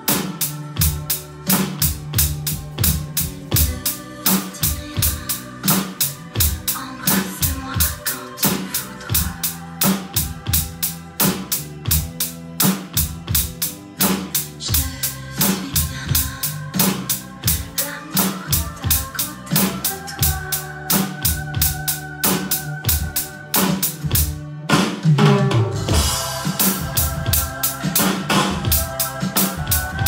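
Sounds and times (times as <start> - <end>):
backing track with bass line: 0.0 - 30.0
electronic drum kit beat: 0.0 - 30.0.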